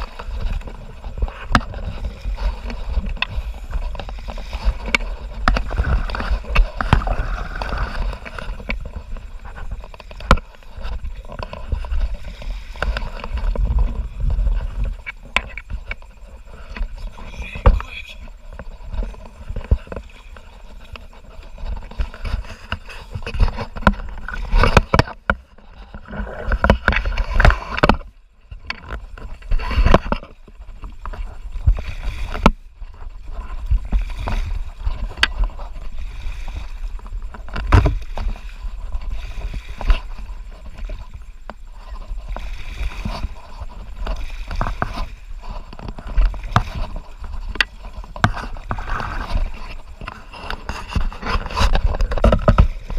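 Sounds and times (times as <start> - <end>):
kayak knocks and thumps: 0.0 - 52.9
water rushing and splashing: 0.0 - 52.9.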